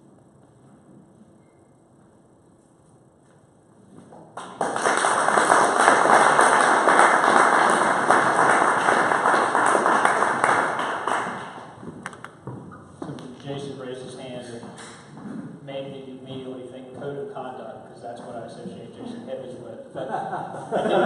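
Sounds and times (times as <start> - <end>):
audience applauding: 4.4 - 11.8.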